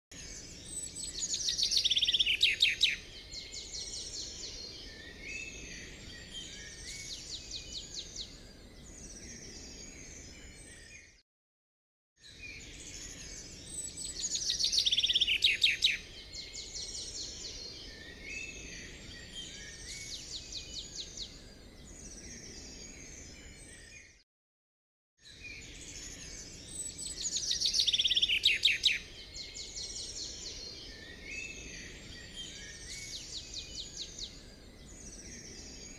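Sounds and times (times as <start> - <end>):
birdsong with chirps and trills: 0.1 - 11.2, 12.2 - 24.2, 25.2 - 35.9.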